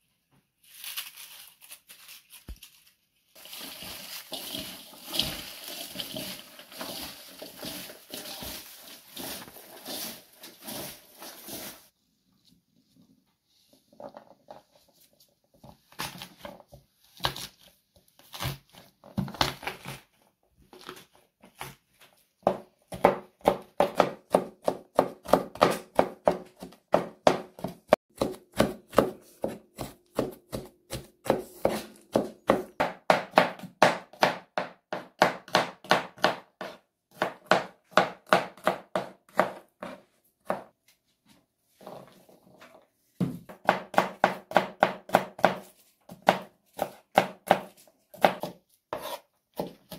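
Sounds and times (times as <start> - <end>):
knife chopping on wooden board: 22.4 - 40.7, 43.2 - 49.9.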